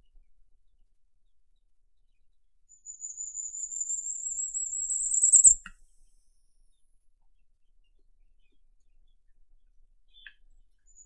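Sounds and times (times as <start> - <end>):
bird singing high thin notes: 3.4 - 5.6.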